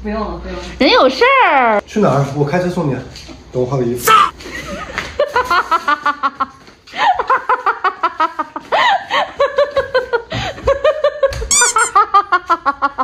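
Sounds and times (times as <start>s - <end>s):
rapid high-pitched laughter: 11.4s - 13.0s
short squeaky high sound: 11.5s - 12.0s.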